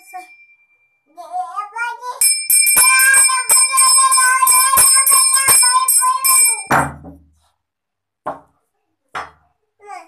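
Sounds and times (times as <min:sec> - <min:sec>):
small brass hand bell ringing: 0:02.2 - 0:06.9.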